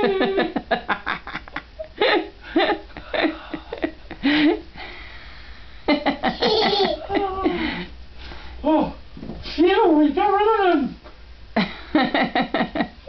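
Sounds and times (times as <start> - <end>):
laughter in short bursts: 6.2 - 7.6.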